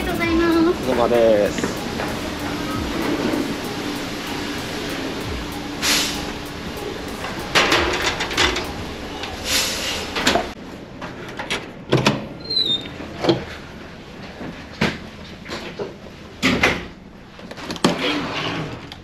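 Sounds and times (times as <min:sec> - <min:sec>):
room hum: 0:00.0 - 0:11.9
short squeak: 0:12.4 - 0:12.9.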